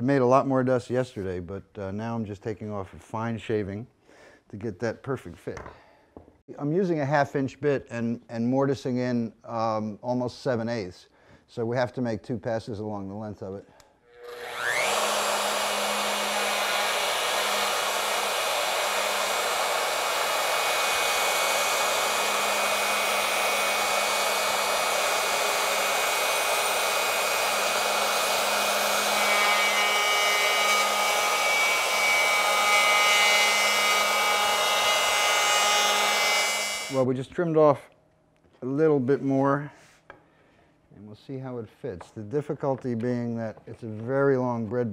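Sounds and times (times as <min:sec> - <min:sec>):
router whining: 0:14.0 - 0:37.0.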